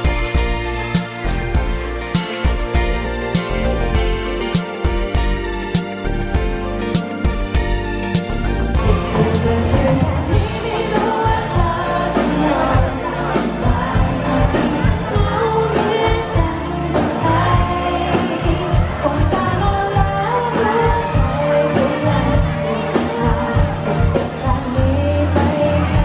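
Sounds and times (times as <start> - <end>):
pop-rock band playing: 0.0 - 26.0
woman singing lead vocal: 8.8 - 26.0.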